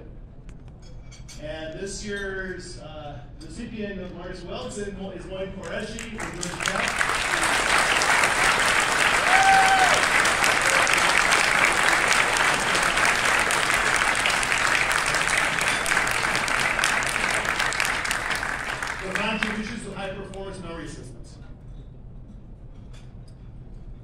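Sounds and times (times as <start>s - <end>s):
audience applauding: 5.7s - 20.0s.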